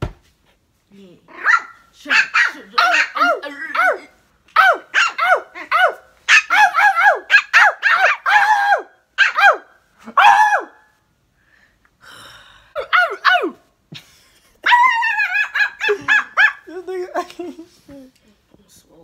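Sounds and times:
puppy barking: 0:01.3 - 0:10.8, 0:12.8 - 0:13.6, 0:14.6 - 0:16.7.

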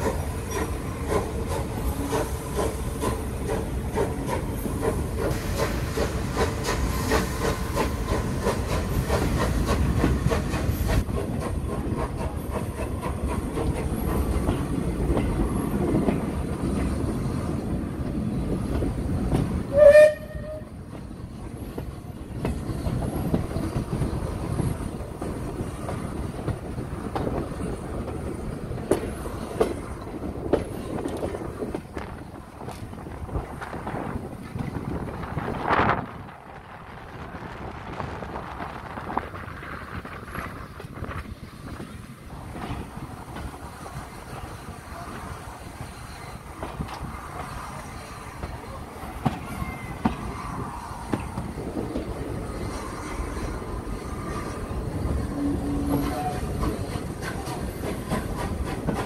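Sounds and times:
train rumbling on rails: 0:00.0 - 0:59.0
wheels clicking over rail joints: 0:39.2 - 0:59.0.

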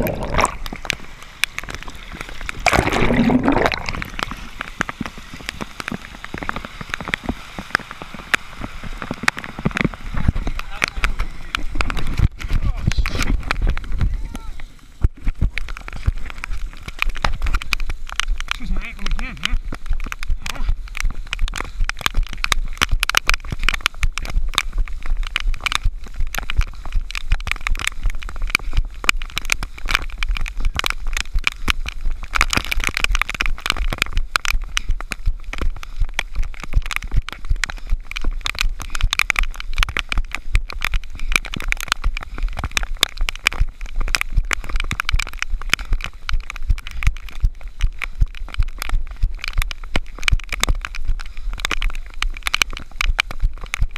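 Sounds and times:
raindrops pattering on camera: 0:00.0 - 0:53.9
running footsteps in wet mud: 0:00.0 - 0:53.9
wind rumble: 0:00.0 - 0:53.9.

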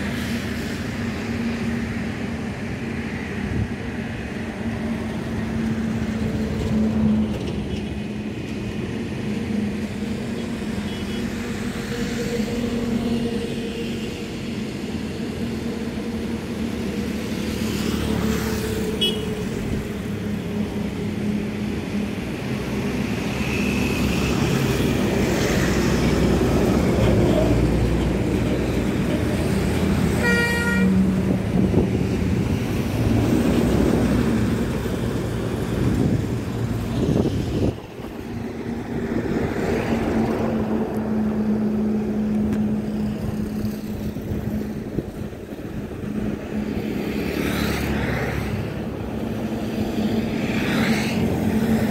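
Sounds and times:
highway traffic: 0:00.0 - 0:51.9
vehicle horn tooting: 0:19.0 - 0:19.4, 0:30.2 - 0:31.0.

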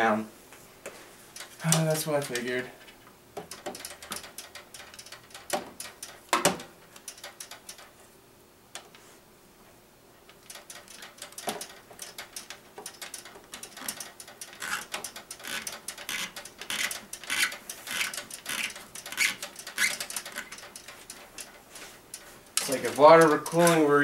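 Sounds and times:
tubing clicking and scraping: 0:01.4 - 0:07.9, 0:10.3 - 0:24.0.

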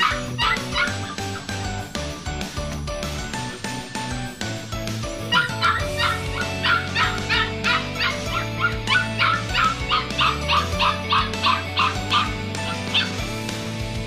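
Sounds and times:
puppy yipping: 0:00.0 - 0:01.5, 0:05.3 - 0:13.2
background music: 0:00.0 - 0:14.0.

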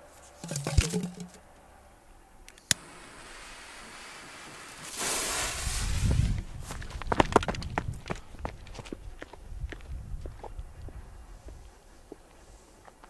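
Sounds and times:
rustling handling: 0:00.0 - 0:01.4
lighter flame hiss: 0:02.6 - 0:06.2.

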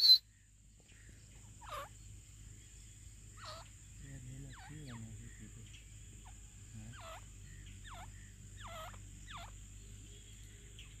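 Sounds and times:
bird whistled calls: 0:00.0 - 0:00.3.

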